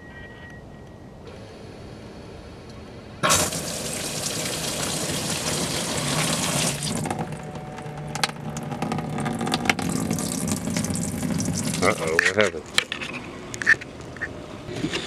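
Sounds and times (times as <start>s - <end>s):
water pouring into plastic tank: 3.2s - 7.4s, 8.1s - 12.0s.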